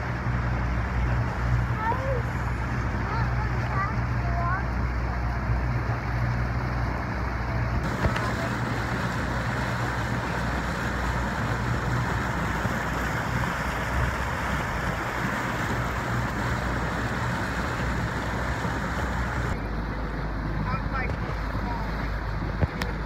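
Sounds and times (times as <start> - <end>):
boat motor running: 0.0 - 23.0
water rushing past hull: 0.0 - 23.0
wind on microphone: 7.6 - 19.8.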